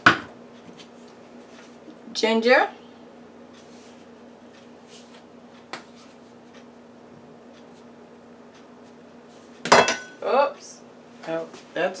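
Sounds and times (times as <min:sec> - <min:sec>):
steady low hum: 0:00.0 - 0:12.0
soft rustles and ticks: 0:03.5 - 0:06.7.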